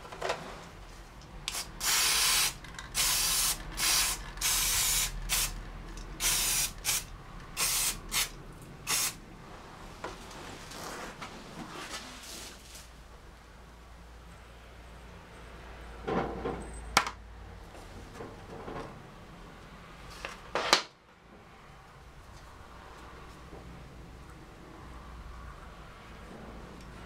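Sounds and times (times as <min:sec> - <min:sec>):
aerosol spray hissing: 0:01.5 - 0:05.6, 0:06.2 - 0:08.3, 0:08.9 - 0:09.2.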